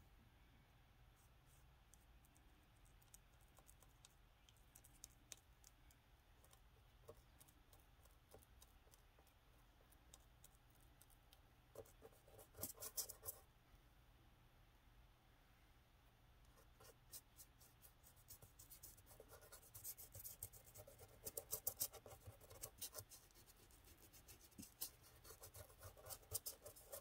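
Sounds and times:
paintbrush dabbing ticks: 1.2 - 13.4, 16.5 - 27.0.

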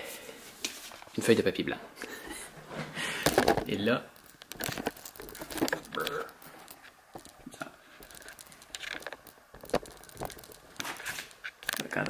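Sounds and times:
paper rustling: 3.3 - 12.0.

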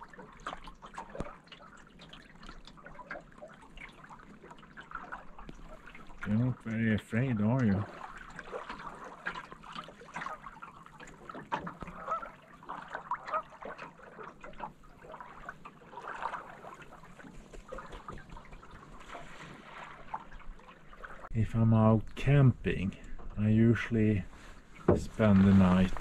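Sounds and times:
waves lapping against canoe hull: 0.0 - 21.4, 22.0 - 26.0
geese honking: 11.9 - 12.4, 13.2 - 13.7.

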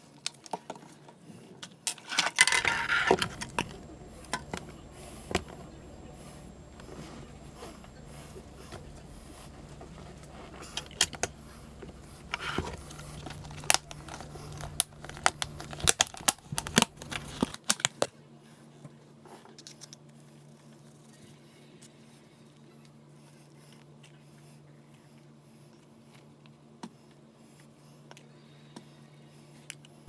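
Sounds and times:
plastic cup scraping powder: 2.4 - 17.6.

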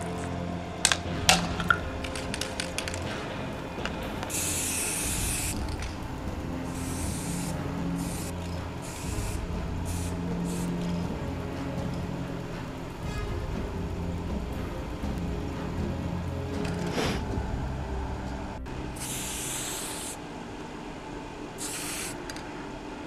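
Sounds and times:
spray paint can hissing: 4.2 - 6.0, 6.6 - 11.1, 19.0 - 20.2, 21.6 - 22.4.

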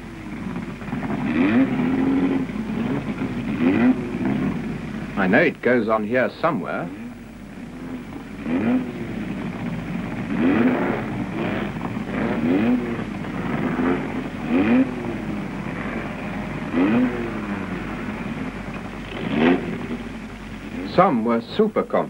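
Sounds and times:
racing car engine revving: 0.0 - 21.7.

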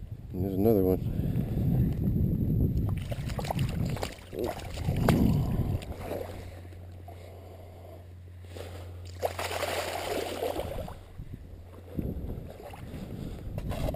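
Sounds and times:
steady low hum: 0.0 - 13.9
water splashing: 2.9 - 6.5, 9.1 - 11.0
wading boots sloshing: 2.9 - 6.6, 9.1 - 11.0.

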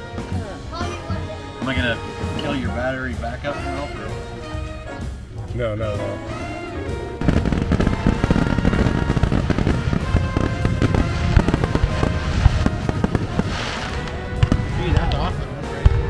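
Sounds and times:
background music: 0.0 - 16.0
fireworks cracking and popping: 7.2 - 16.0.

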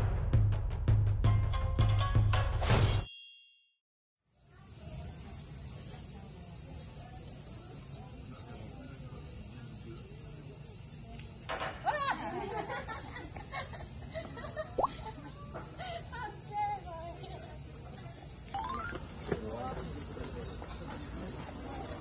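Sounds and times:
high-pitched insect chorus: 4.3 - 22.0
faint voices: 4.4 - 12.0, 14.2 - 22.0.

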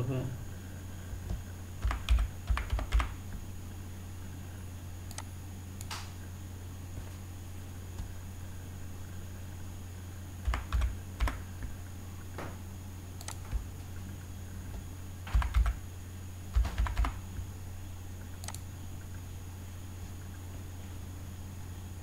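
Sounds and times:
steady low hum: 0.0 - 22.0
computer keyboard typing: 1.2 - 3.2, 10.4 - 11.4, 13.2 - 13.7, 15.3 - 15.8, 16.5 - 17.2.

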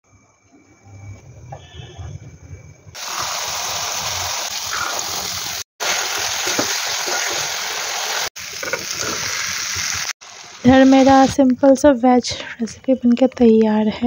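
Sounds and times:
food sizzling in pan: 3.0 - 11.4.

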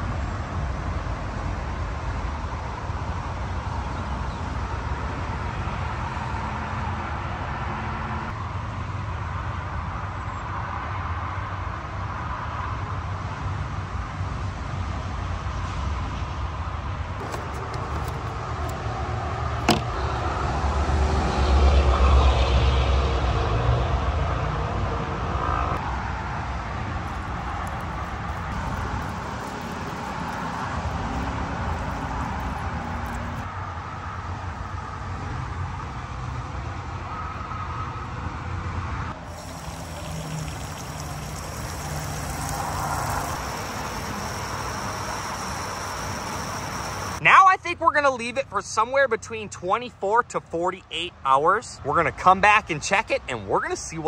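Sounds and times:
liquid pouring and splashing: 27.0 - 33.4, 39.2 - 47.2.

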